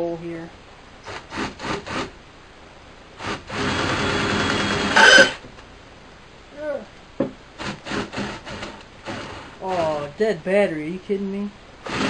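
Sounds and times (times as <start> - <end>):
drill bursts: 1.0 - 2.1, 3.2 - 5.4, 7.6 - 9.8
drill grinding into steel: 3.2 - 5.4.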